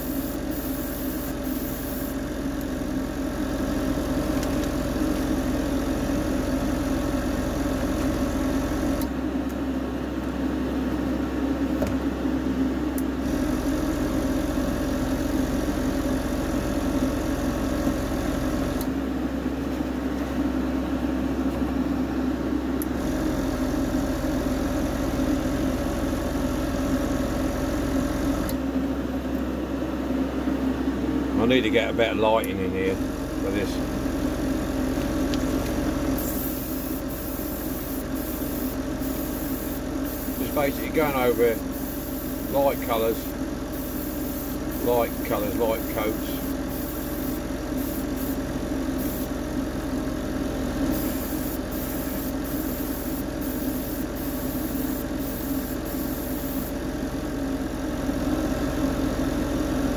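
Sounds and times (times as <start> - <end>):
airbrush spraying hiss: 0.0 - 2.2, 36.2 - 48.4, 49.0 - 49.4, 50.9 - 56.8
compressor and fan humming: 0.0 - 59.9.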